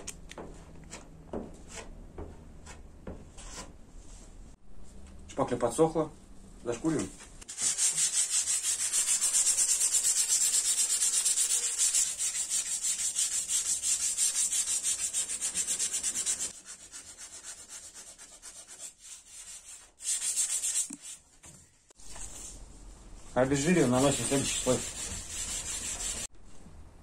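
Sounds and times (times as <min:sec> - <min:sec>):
sandpaper rubbing back and forth: 0:07.5 - 0:21.2, 0:23.6 - 0:26.3.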